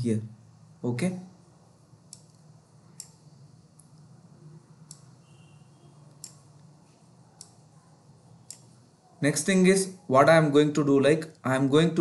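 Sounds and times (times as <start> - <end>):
mouse buttons clicking: 2.1 - 3.2, 4.8 - 5.2, 6.1 - 6.7, 7.4 - 7.6, 8.4 - 8.8.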